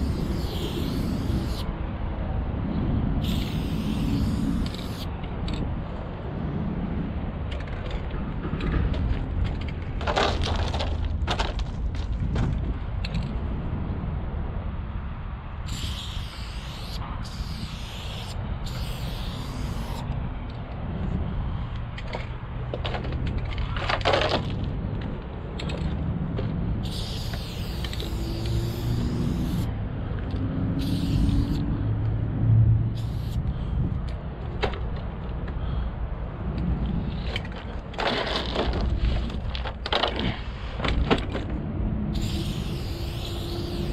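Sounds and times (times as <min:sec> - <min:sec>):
spray paint can hissing: 0:00.0 - 0:01.7, 0:03.2 - 0:05.1, 0:15.6 - 0:20.1, 0:26.8 - 0:29.7, 0:30.7 - 0:31.6, 0:32.9 - 0:33.4, 0:42.1 - 0:43.9
steady low rumble: 0:00.0 - 0:43.9.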